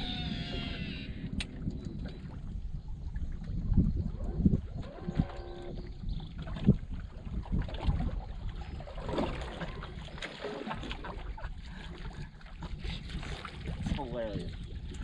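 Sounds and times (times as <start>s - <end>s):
water lapping against a hull: 0.0s - 15.0s
wind buffeting the microphone: 0.0s - 15.0s
small splashes: 4.9s - 15.0s.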